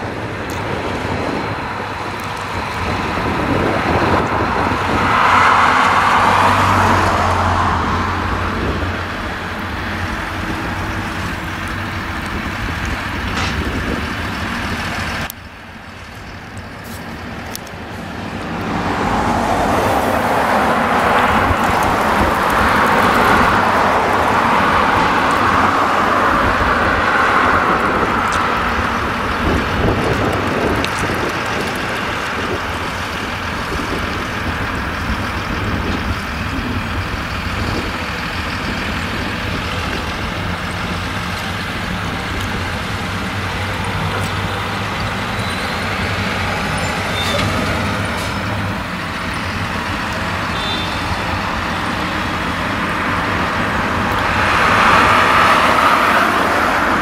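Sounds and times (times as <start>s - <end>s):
road traffic: 0.0s - 57.0s
tractor engine running: 0.0s - 57.0s
lorry passing: 0.1s - 57.0s.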